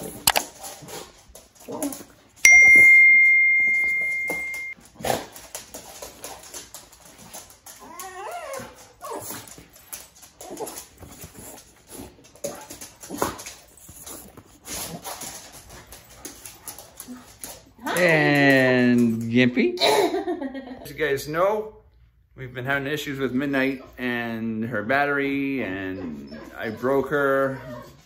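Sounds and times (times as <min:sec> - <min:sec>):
bell-like ding: 0:02.4 - 0:04.8
dog whining: 0:07.8 - 0:09.5.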